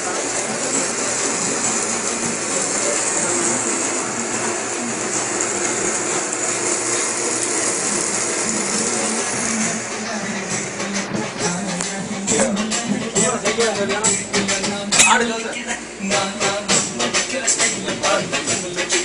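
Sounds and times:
oil sizzling in a pan: 0.0s - 11.0s.

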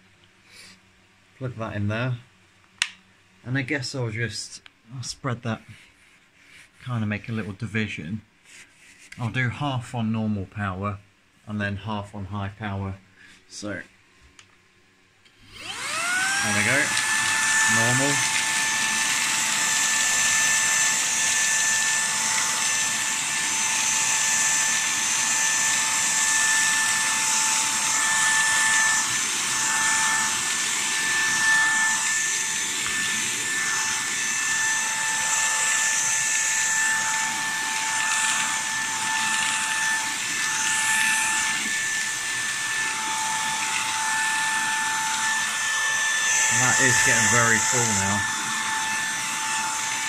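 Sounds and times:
vacuum cleaner motor whine: 15.3s - 50.0s.

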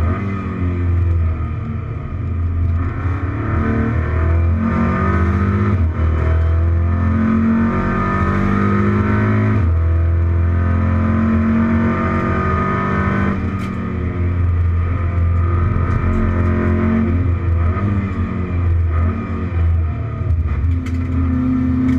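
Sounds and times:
racing car engine accelerating: 0.0s - 21.9s.

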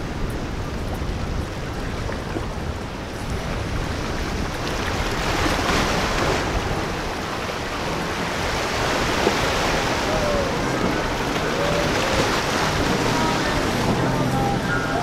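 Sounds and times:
wind buffeting microphone: 0.0s - 15.0s
surf breaking: 4.5s - 15.0s.

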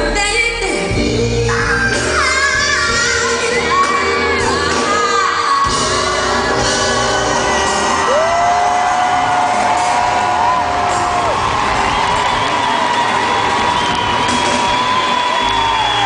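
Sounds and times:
live soul band: 0.0s - 12.6s
women singing: 0.7s - 7.9s.

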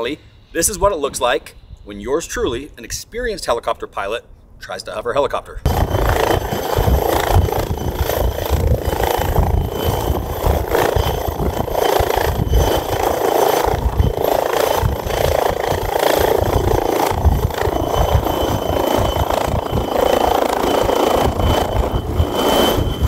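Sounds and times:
turbine whine: 0.0s - 3.0s, 5.6s - 23.0s
helicopter rotor chop: 5.6s - 23.0s.

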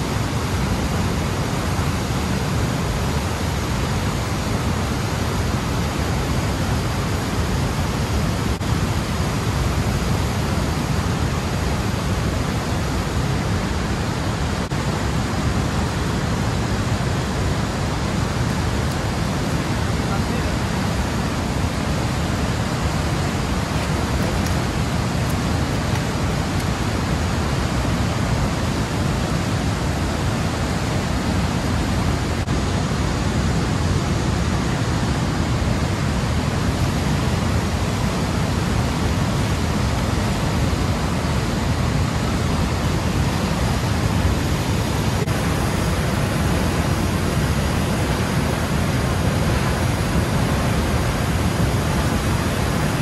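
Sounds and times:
water rushing through dam gates: 0.0s - 53.0s.

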